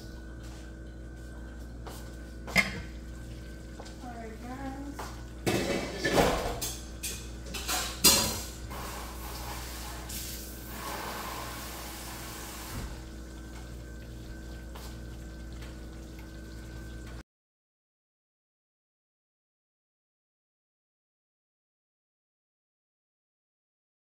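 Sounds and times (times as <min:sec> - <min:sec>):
tap water splashing into sink: 0:12.3 - 0:17.2.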